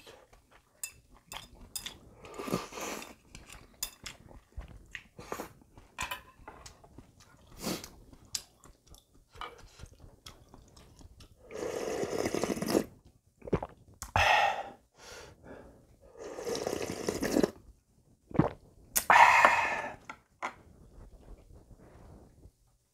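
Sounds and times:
soft mouth sounds: 0:07.3 - 0:14.8, 0:16.1 - 0:17.7, 0:18.3 - 0:20.1
man slurping broth: 0:11.5 - 0:12.9, 0:16.2 - 0:17.6, 0:18.4 - 0:20.0.

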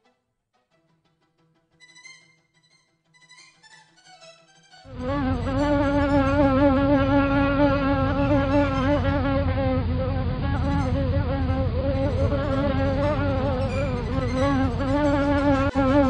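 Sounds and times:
wavering buzzing tone: 0:04.9 - 0:16.0.

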